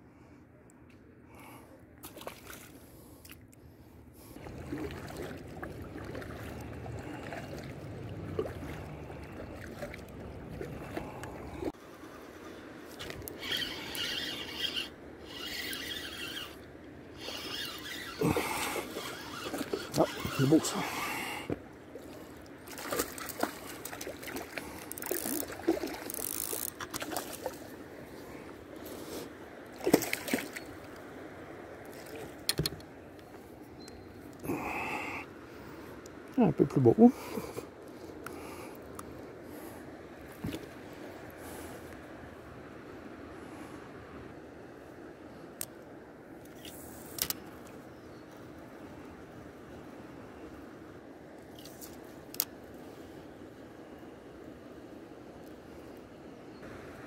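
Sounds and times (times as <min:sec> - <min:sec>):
kayak paddle pulling through water: 0:04.2 - 0:30.6.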